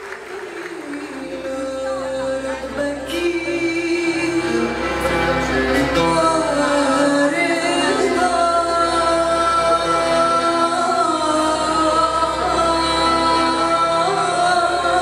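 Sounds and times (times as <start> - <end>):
violin: 0.0 - 15.0
woman singing into microphone: 0.4 - 15.0
accordion: 1.3 - 15.0.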